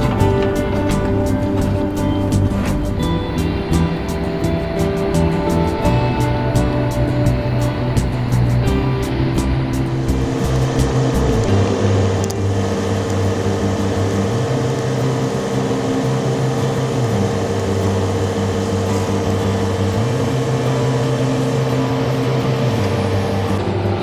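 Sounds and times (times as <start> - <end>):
droning music of low chords: 0.0 - 24.0.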